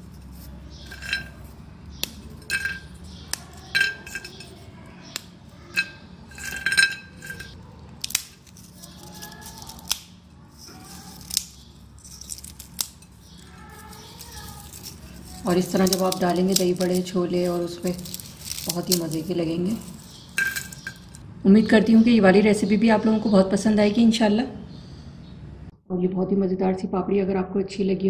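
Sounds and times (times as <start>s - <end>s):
crackers snapping and crumbling: 0.0s - 21.2s.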